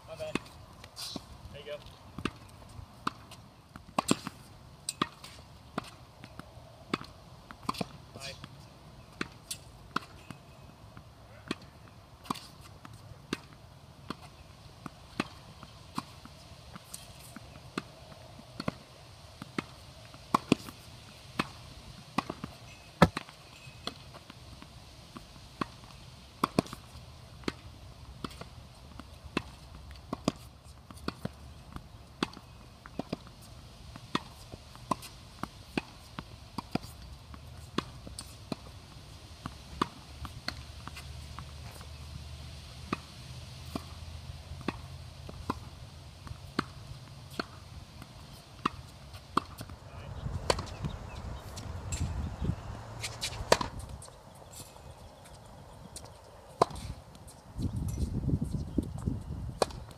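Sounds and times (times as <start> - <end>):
racket hitting tennis ball: 2.1 - 24.6, 25.2 - 42.1, 42.8 - 54.8, 55.9 - 57.0, 59.6 - 59.9
ball bouncing on court: 50.4 - 52.1, 53.1 - 53.9.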